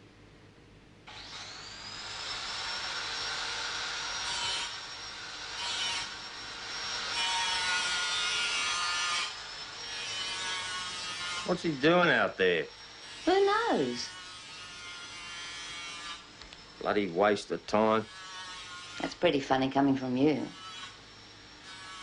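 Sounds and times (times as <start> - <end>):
power tool rasping and scraping: 1.1 - 16.8, 17.7 - 19.3, 20.3 - 21.0, 21.6 - 22.0
power tool motor whining: 1.1 - 16.9.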